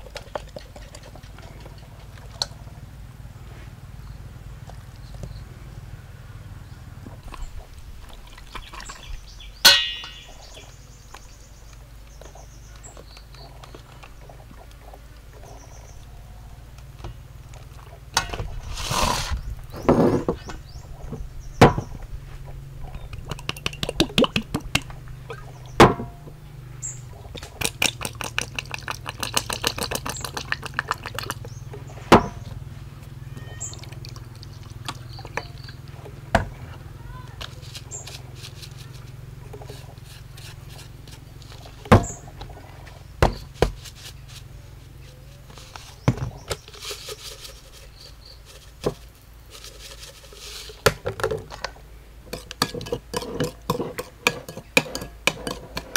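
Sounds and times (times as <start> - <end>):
low steady hum: 0.0 - 55.9
quick rattling ticks: 27.6 - 31.6.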